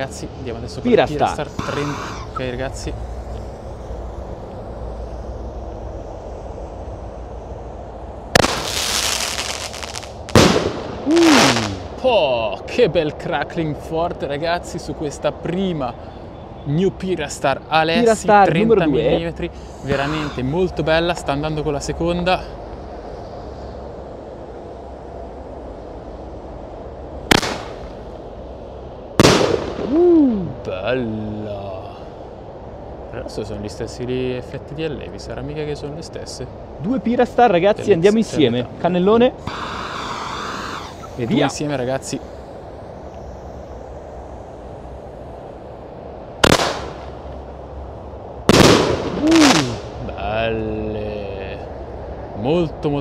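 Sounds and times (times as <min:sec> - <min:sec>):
low outdoor rumble: 0:00.0 - 0:53.0
firework crackling: 0:00.9 - 0:12.1, 0:27.3 - 0:28.2, 0:29.2 - 0:30.2, 0:39.4 - 0:47.8, 0:48.4 - 0:50.0
firework bangs: 0:08.3 - 0:11.9, 0:27.3 - 0:27.9, 0:29.2 - 0:30.0, 0:46.4 - 0:47.4, 0:48.5 - 0:50.0.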